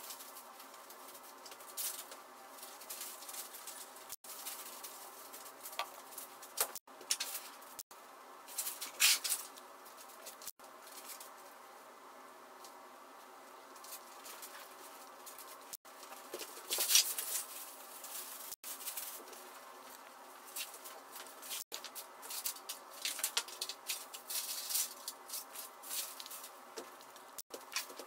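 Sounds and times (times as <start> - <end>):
plastic and paper crinkling: 0.0 - 7.8, 13.7 - 28.0
faint steady hum: 0.0 - 28.0.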